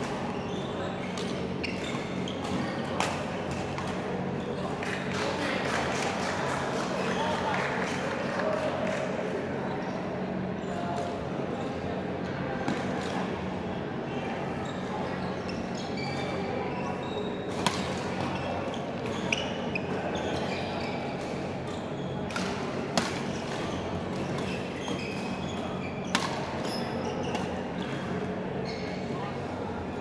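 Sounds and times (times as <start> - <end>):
low hall hum: 0.0 - 30.0
shoe squeaks on court: 0.4 - 2.9, 14.6 - 22.2, 23.2 - 28.0, 28.6 - 29.1
rackets striking shuttlecock: 17.5 - 18.0, 26.1 - 26.5.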